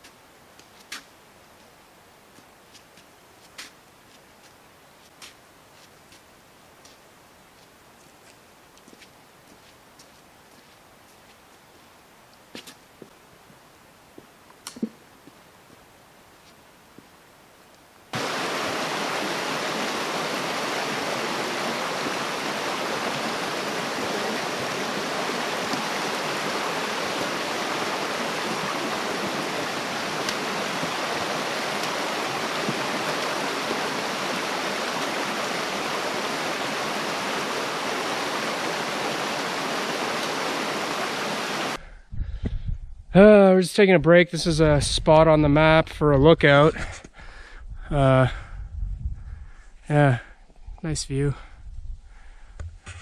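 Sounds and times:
stream running water: 18.1s - 41.8s.

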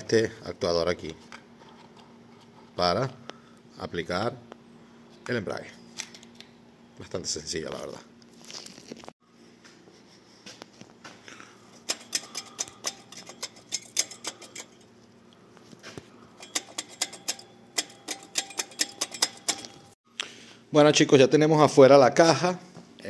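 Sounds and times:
ratchet wrench clicking: 11.8s - 14.8s, 16.4s - 19.9s.

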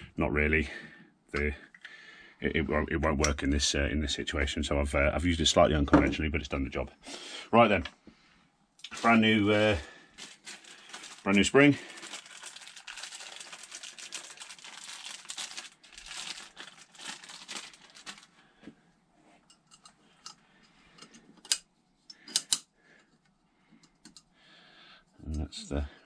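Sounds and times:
packaging crinkling: 8.9s - 18.4s.

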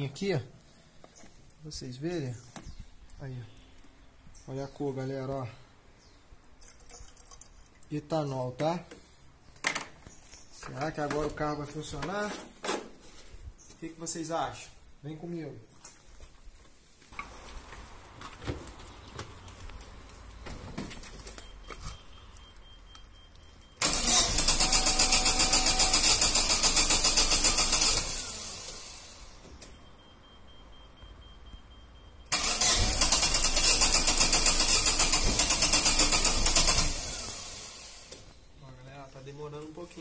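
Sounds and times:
starter motor cranking engine: 23.8s - 29.3s, 32.3s - 38.3s.

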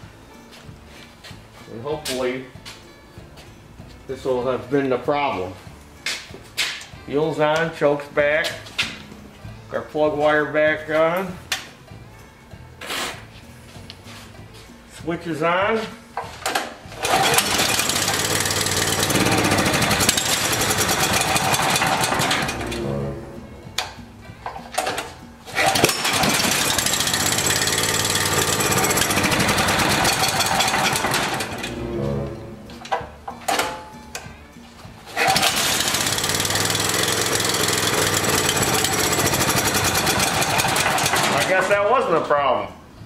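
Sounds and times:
generator engine pull-started: 16.4s - 24.0s, 24.8s - 33.8s, 35.1s - 41.7s.

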